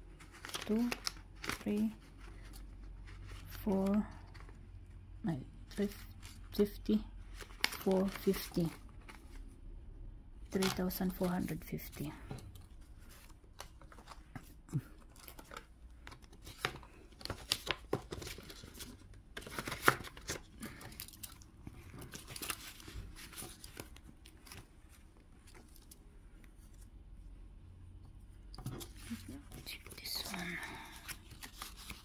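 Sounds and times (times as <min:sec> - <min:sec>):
paper rustling and crinkling: 0:00.1 - 0:04.6, 0:05.6 - 0:09.6, 0:10.5 - 0:26.9, 0:28.5 - 0:32.0.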